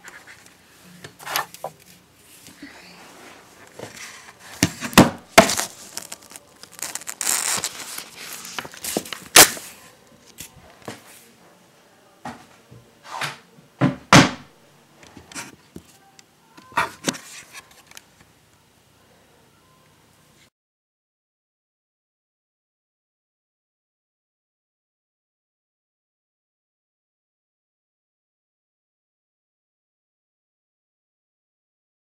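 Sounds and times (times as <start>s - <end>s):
rustling: 0.0s - 11.2s.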